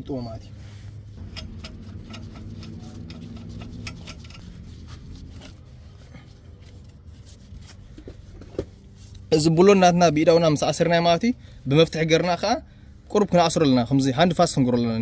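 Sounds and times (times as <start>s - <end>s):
low steady hum: 0.0s - 15.0s
lug nuts clicking on studs: 1.2s - 4.6s.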